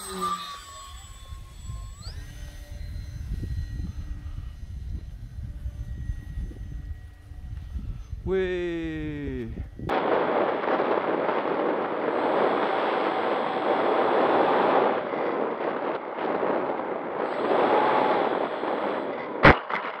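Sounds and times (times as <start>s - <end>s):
propeller noise: 0.0s - 20.0s
rushing wind: 0.8s - 20.0s.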